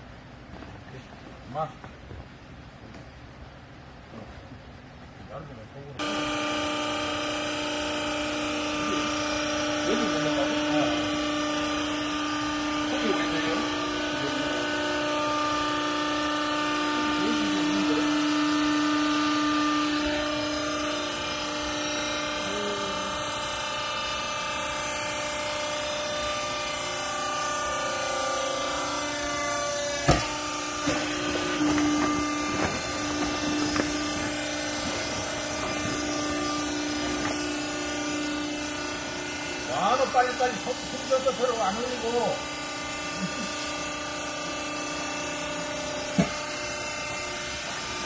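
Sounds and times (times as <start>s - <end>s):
pump motor humming: 6.0s - 48.0s.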